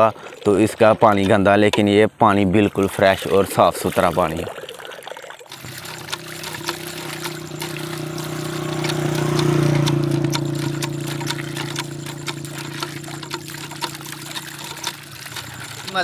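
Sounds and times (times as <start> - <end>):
water splashing into trough: 0.0 - 16.0
pump knocking: 0.6 - 2.0, 5.5 - 16.0
motorcycle passing: 5.5 - 16.0.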